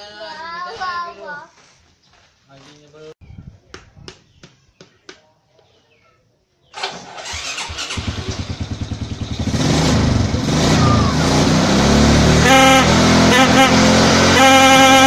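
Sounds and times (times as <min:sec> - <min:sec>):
motorcycle engine running: 0:07.3 - 0:15.0
horn blast: 0:12.2 - 0:15.0.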